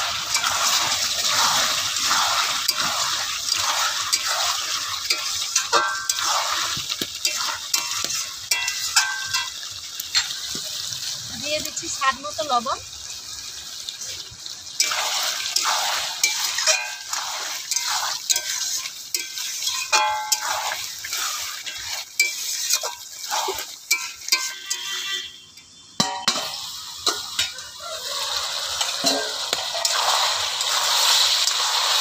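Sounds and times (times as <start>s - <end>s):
metal spatula scraping pan: 0.0s - 10.4s, 14.8s - 32.0s
food sizzling: 0.0s - 32.0s
spatula clanking against pan: 5.0s - 6.3s, 7.2s - 10.4s, 17.7s - 20.8s, 21.7s - 25.0s, 26.0s - 27.6s, 28.8s - 30.0s.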